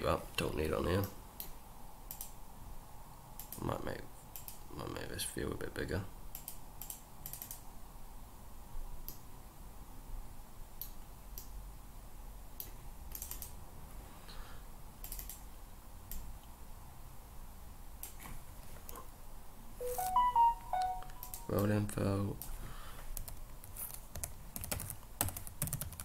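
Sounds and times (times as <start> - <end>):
faint background hum: 0.0 - 26.0
mouse and keyboard clicks: 6.4 - 7.6.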